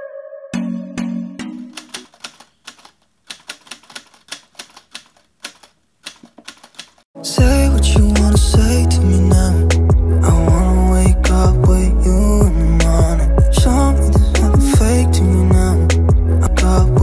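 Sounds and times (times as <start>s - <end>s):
music: 0.0s - 1.7s, 7.2s - 17.0s
clicks: 1.7s - 7.0s
typewriter key clacks: 1.7s - 7.0s.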